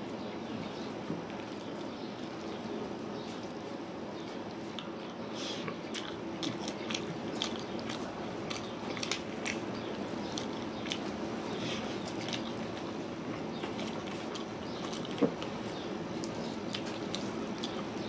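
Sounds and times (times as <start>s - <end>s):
man chewing with wet smacks: 0.2s - 18.0s.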